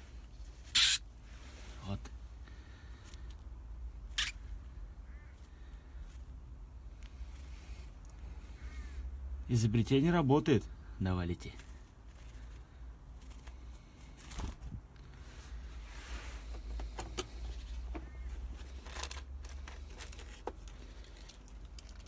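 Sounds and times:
thin plastic crinkling: 0:18.6 - 0:22.0.

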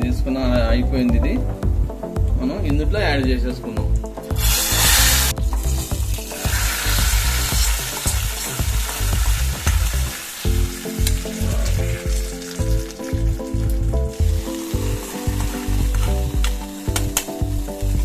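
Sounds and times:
background music with beat: 0:00.0 - 0:18.0
hot oil sizzling: 0:04.2 - 0:18.0
pan being scraped: 0:04.4 - 0:08.6.

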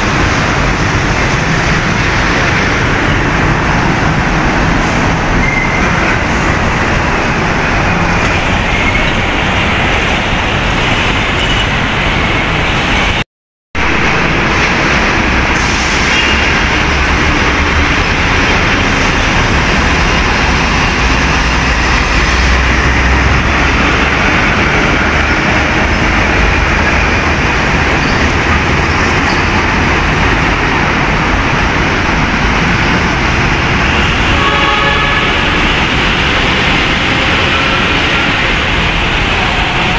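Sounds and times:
heavy traffic passing: 0:00.0 - 0:13.2, 0:13.8 - 0:39.9.

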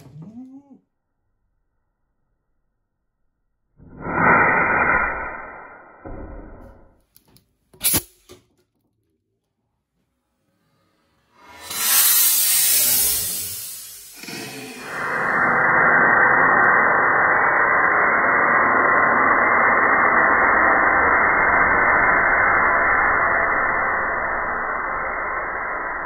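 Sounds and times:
muffled rushing of burning vapour: 0:11.4 - 0:26.0.

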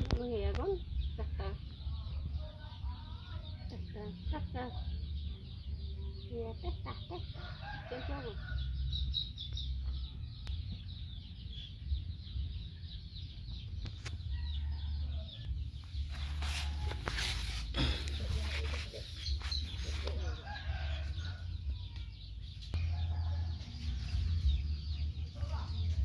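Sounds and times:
small birds chirping: 0:00.0 - 0:26.0
chickens clucking: 0:13.7 - 0:26.0.

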